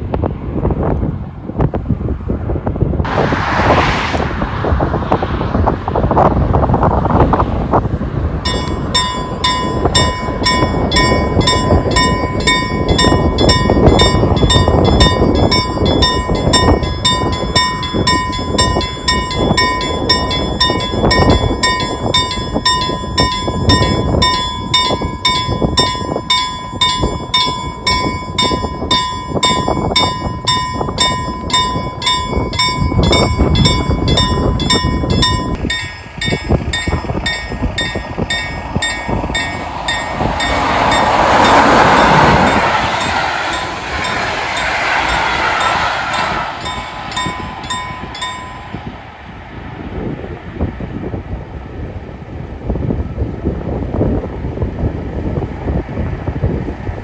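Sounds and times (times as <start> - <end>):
wind buffeting microphone: 0.0 - 57.0
level crossing warning bell: 8.4 - 49.0.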